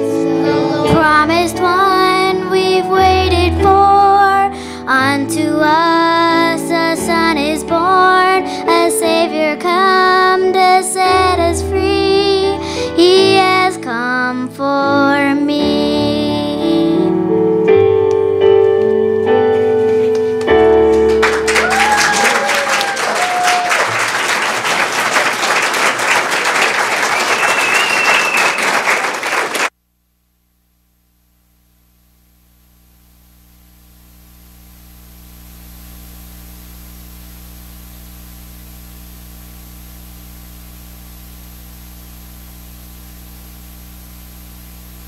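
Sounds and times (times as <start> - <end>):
instrumental accompaniment: 15.9 - 21.7
audience applauding: 19.7 - 29.7.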